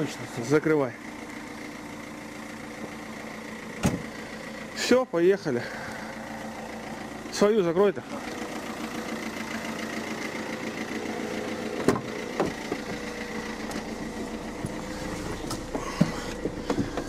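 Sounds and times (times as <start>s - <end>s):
car engine idling: 0.0s - 17.0s
car door shutting: 3.8s - 4.1s, 11.7s - 17.0s.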